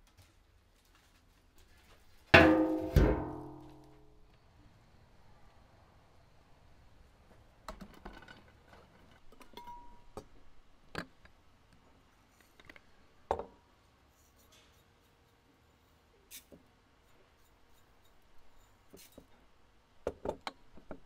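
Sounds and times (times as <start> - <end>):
glass and metal clinking: 9.5 - 10.1.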